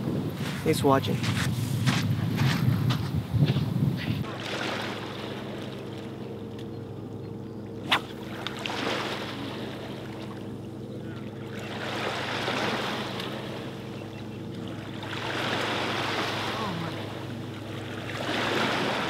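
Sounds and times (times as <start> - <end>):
low hum: 3.9 - 19.0
water washing on shoreline: 4.2 - 6.7, 7.8 - 19.0.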